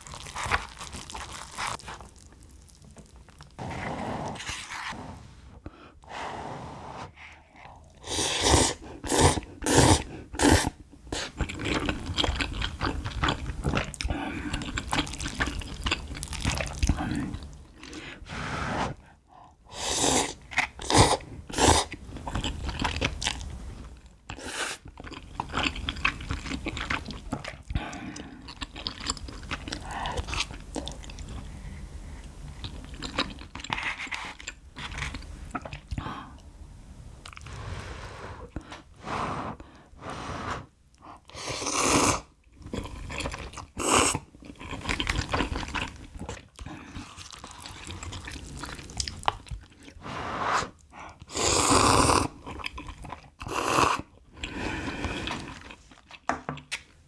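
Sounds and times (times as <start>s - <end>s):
chewing: 0.0s - 3.6s, 8.7s - 18.0s, 20.3s - 36.5s, 37.2s - 37.6s, 40.9s - 50.0s, 50.8s - 56.9s
slurping noodles: 3.6s - 11.8s, 17.8s - 19.1s, 19.7s - 22.6s, 37.3s - 44.3s, 49.8s - 55.9s.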